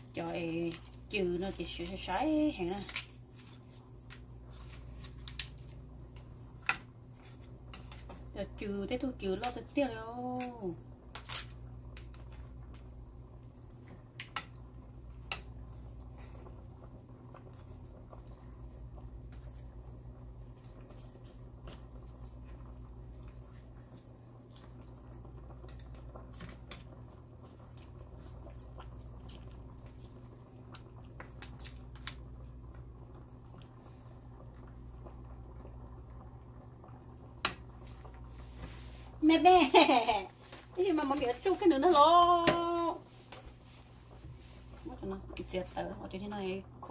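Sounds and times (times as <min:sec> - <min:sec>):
spoon stirring in a pan: 0:00.1 - 0:08.4.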